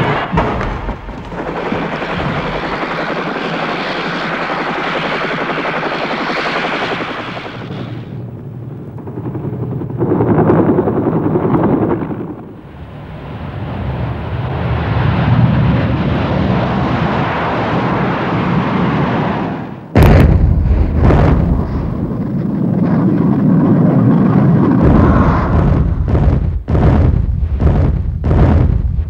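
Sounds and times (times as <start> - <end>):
helicopter rotors and engines: 0.0 - 29.0.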